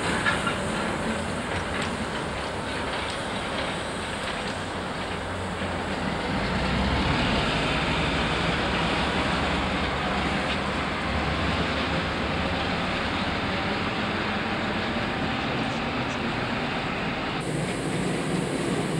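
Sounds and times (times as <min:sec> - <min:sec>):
diesel engine rumble: 0:00.0 - 0:18.9.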